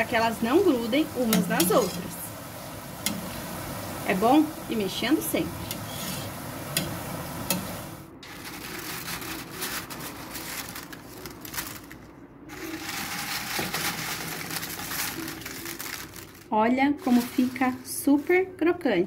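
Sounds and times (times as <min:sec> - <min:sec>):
plantain slices sizzling in oil: 0:00.0 - 0:10.2
skimmer stirring in oil: 0:00.0 - 0:10.4
crisp chips rustling and crackling: 0:08.2 - 0:18.4.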